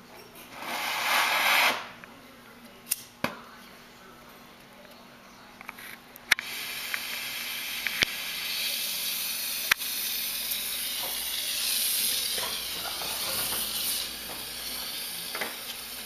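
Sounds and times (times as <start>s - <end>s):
soldering torch hissing: 6.4s - 16.0s.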